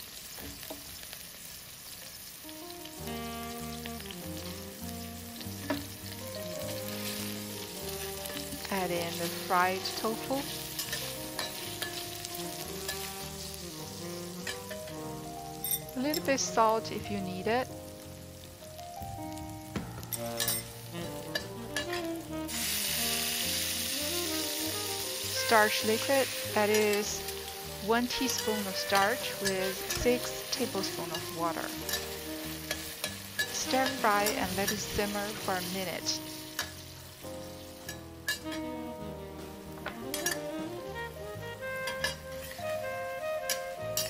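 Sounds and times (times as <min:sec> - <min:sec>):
tofu sizzling in oil: 0:00.0 - 0:44.0
metal spoon scraping wok: 0:06.7 - 0:15.0, 0:20.1 - 0:22.8, 0:25.2 - 0:35.9, 0:36.6 - 0:36.9, 0:37.9 - 0:38.7, 0:40.1 - 0:40.4, 0:41.9 - 0:42.7, 0:43.5 - 0:44.0
background music with beat: 0:18.9 - 0:23.2.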